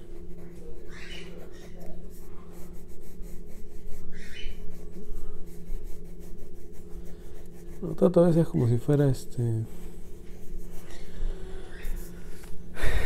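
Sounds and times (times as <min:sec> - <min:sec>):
pencil scratching on paper: 0:00.0 - 0:09.1, 0:09.9 - 0:12.3
steady low hum: 0:00.0 - 0:13.0.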